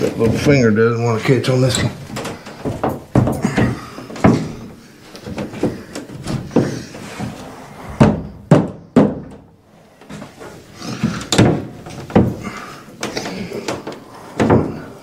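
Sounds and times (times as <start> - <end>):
plastic panel knocking and thumping: 7.9 - 9.5, 11.0 - 14.9.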